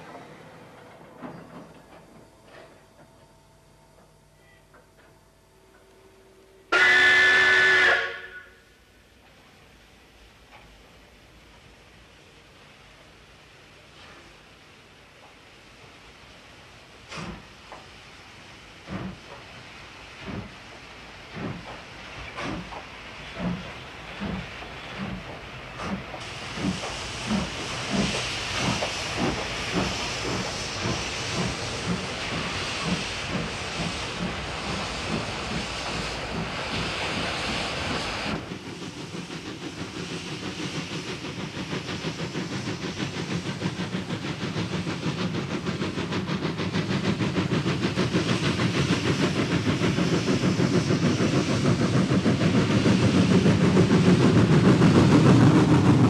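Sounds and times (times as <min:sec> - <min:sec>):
steam locomotive chuffing: 0:04.0 - 0:09.8, 0:10.5 - 0:56.0
hissing steam: 0:06.6 - 0:56.0.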